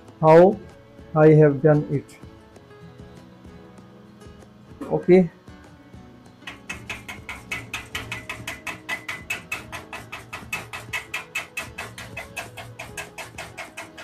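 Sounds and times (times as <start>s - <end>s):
hammer tapping on steel: 6.4s - 14.0s.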